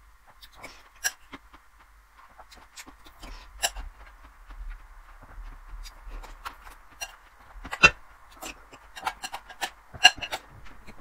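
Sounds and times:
spoon scraping glass bowl: 7.8s - 10.4s.

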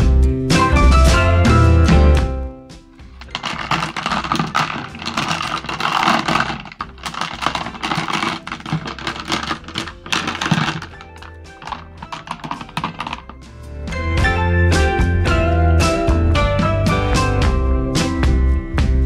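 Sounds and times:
stones clattering in water: 3.0s - 13.4s.

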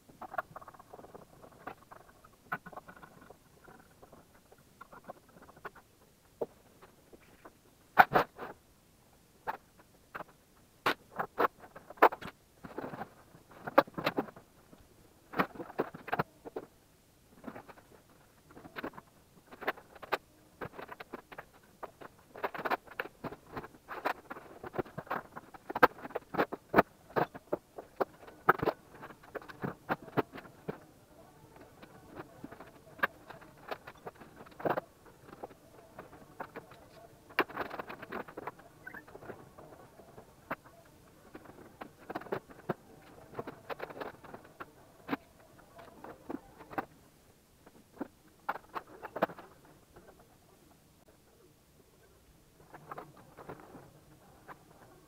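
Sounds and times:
clicks knocks and scrapes: 15.3s - 16.7s, 17.4s - 30.8s, 31.5s - 46.9s, 47.6s - 50.2s.

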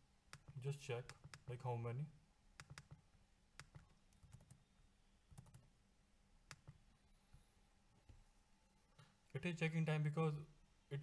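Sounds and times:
computer mouse clicks: 2.6s - 3.0s, 3.6s - 4.6s, 5.3s - 5.6s, 6.5s - 6.8s.

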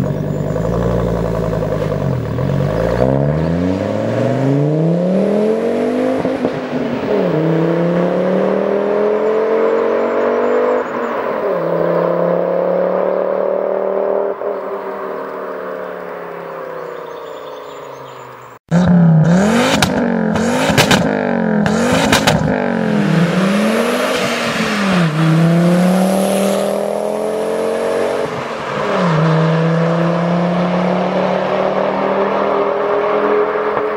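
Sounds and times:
exhaust cracks: 0.0s - 3.7s, 18.7s - 26.2s
car engine revving: 0.0s - 33.9s.

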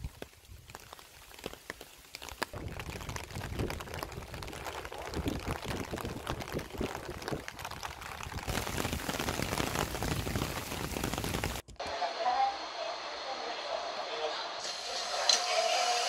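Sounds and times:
rain on asphalt road: 0.0s - 11.6s.

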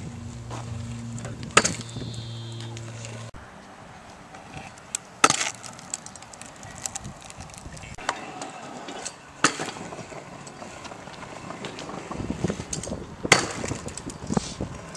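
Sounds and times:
hard wheels rolling: 0.0s - 14.9s
scooter clacking on concrete: 8.0s - 14.9s.

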